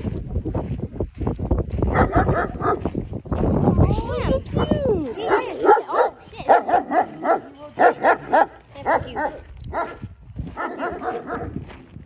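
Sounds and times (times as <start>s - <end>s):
dog barking: 1.9s - 2.9s, 5.2s - 10.0s, 10.6s - 11.6s.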